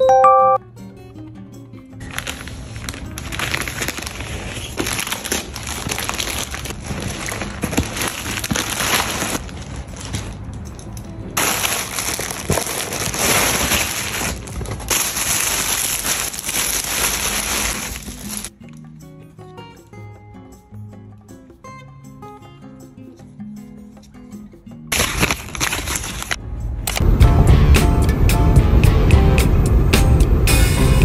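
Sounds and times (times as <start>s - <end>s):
packaging crinkling and tearing: 2.0s - 10.5s, 11.4s - 18.5s, 24.9s - 27.0s.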